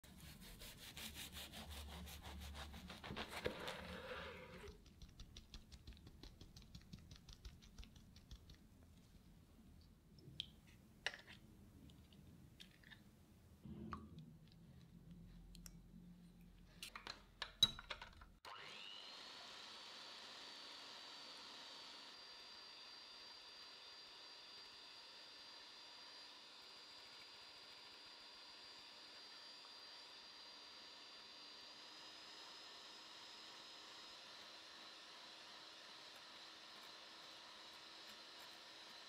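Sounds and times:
knife sawing through sponge cake: 0.0 - 4.8
electric hand mixer whine: 18.5 - 39.0.

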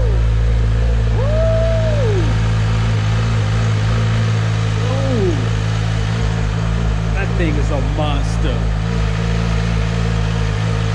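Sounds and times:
motorcycle engine idling: 0.0 - 10.9.

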